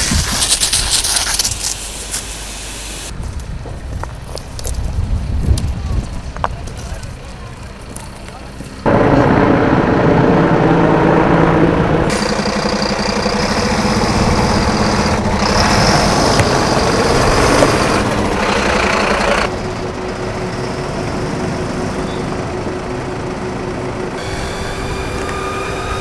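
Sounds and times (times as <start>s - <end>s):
diesel engine running: 6.1s - 26.0s
helicopter rotor noise: 7.0s - 26.0s.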